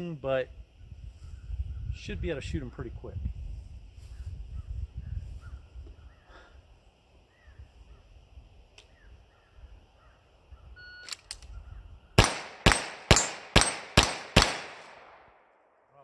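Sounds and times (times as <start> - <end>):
faint birdsong: 0.1 - 2.2, 3.8 - 12.2
handgun shots hitting steel plates: 12.2 - 15.0.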